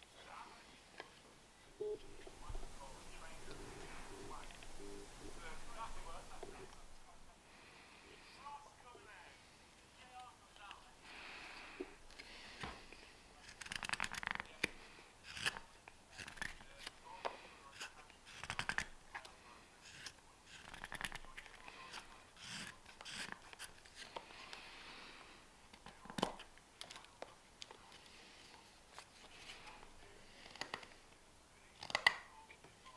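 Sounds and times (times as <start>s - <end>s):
knife carving wood: 13.4s - 17.0s, 17.7s - 24.2s.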